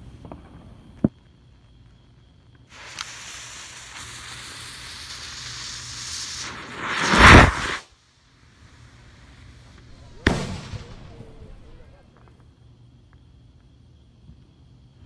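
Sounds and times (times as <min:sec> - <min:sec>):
firework fuse sizzling: 0:00.0 - 0:12.8
rocket lifting off with whoosh: 0:06.4 - 0:07.8, 0:09.8 - 0:12.1.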